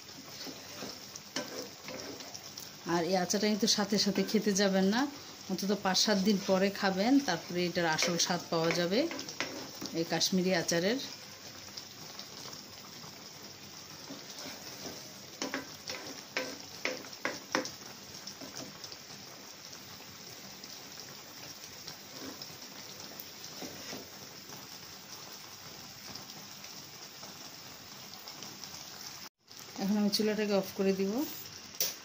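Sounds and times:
syrup boiling in a wok: 0.0 - 32.0.

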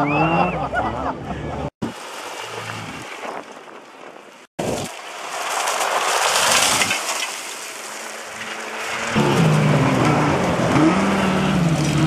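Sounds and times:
tyres throwing gravel: 2.0 - 9.8.

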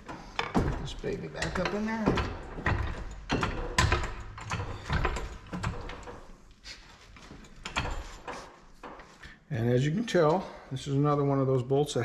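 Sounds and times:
hand tools knocking on metal: 0.0 - 6.3.

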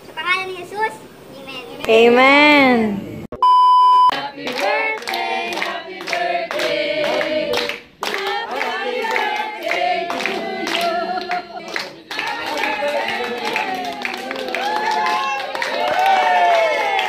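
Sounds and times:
group of adults singing: 4.1 - 16.4
people clapping in time: 4.1 - 17.0.

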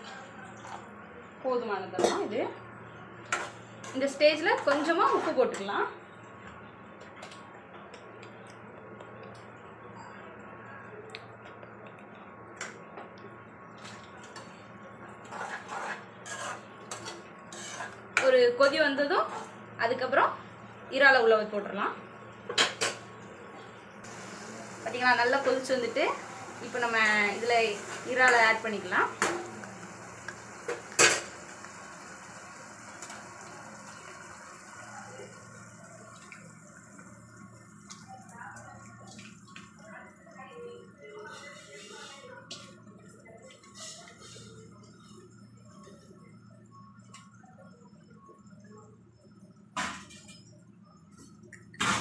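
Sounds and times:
steel spoon scraping a pan: 15.2 - 18.0, 41.3 - 42.3.

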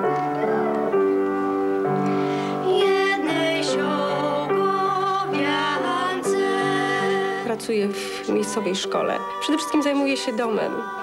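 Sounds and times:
upright piano: 0.0 - 11.0
woman singing: 2.5 - 11.0.

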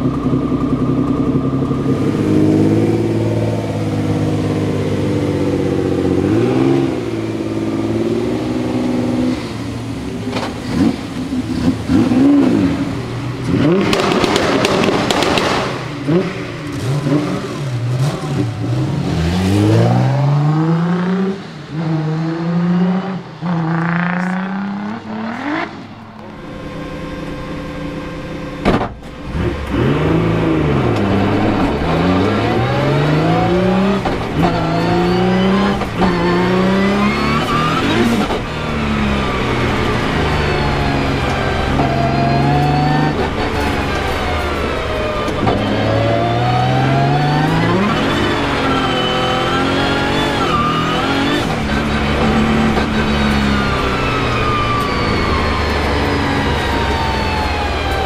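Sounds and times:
car engine revving and accelerating: 0.0 - 58.0
sharp crack: 13.5 - 16.0.

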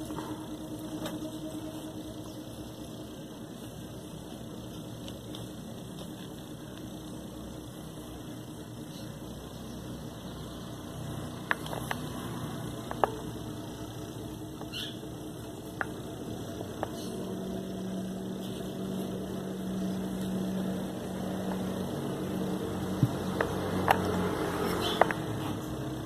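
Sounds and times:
low even drone: 0.0 - 3.3
steady low hum: 0.0 - 26.0
metal tool clicks and taps: 24.9 - 25.2.

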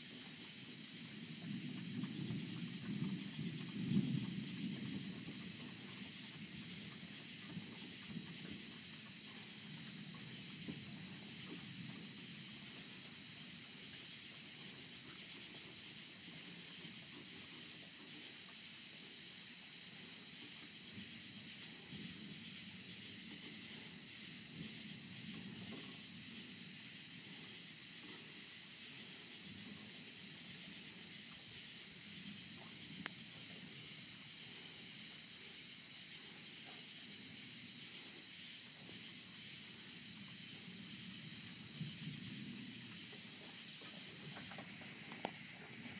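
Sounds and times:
night insects trilling: 0.0 - 45.9.

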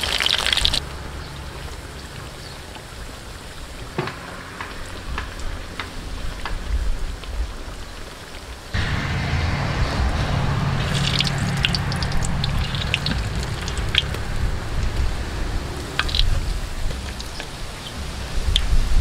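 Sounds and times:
oil popping: 0.0 - 0.8, 10.8 - 18.7
food deep-frying in oil: 0.0 - 8.8, 10.8 - 19.0.

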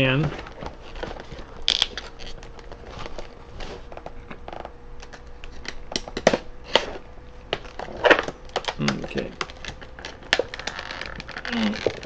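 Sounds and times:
plastic packaging clicking and crackling: 0.3 - 6.5, 7.5 - 12.0.

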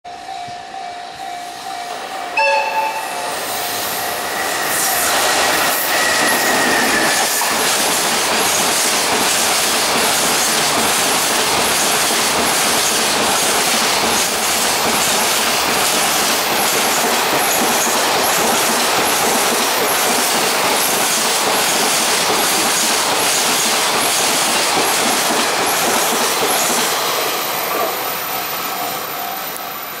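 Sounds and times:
freight train rumbling past: 0.1 - 30.0
locomotive horn: 2.4 - 3.6
thin wheel squeal: 4.4 - 7.5.

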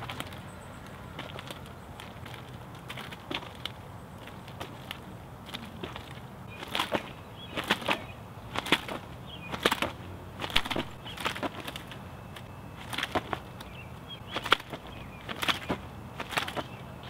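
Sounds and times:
nunchaku swish and slap: 14.3 - 16.8.

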